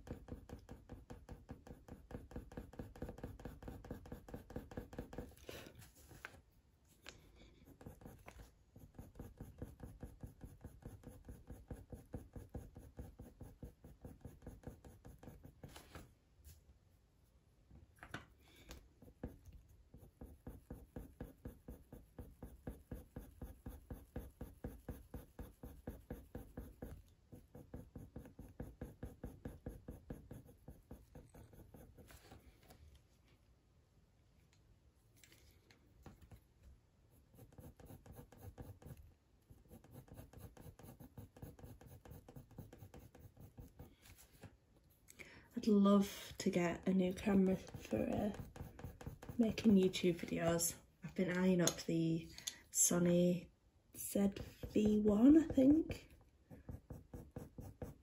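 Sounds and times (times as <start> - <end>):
pencil scratching on paper: 0.0 - 6.5, 7.2 - 16.1, 18.6 - 32.7, 37.1 - 44.5, 45.6 - 50.7, 54.0 - 58.0.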